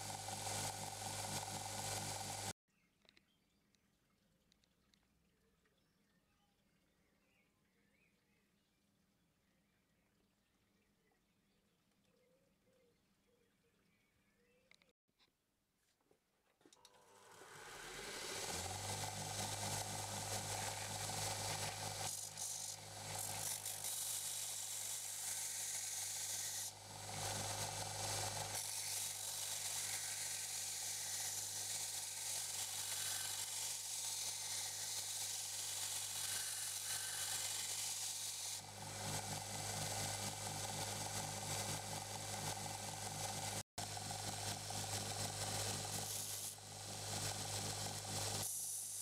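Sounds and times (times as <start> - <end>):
belt grinder motor humming: 0.0 - 2.5, 16.8 - 49.0
blade grinding hiss: 17.2 - 43.6, 44.2 - 49.0.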